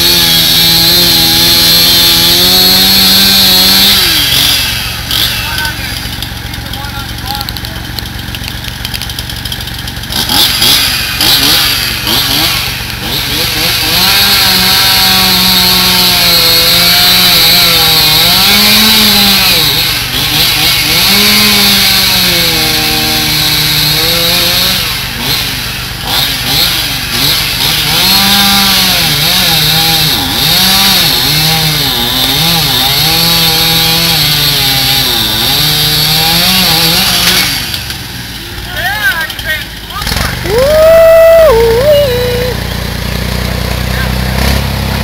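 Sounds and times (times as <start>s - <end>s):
chainsaw cutting wood: 0.0s - 45.0s
low engine hum: 39.5s - 45.0s.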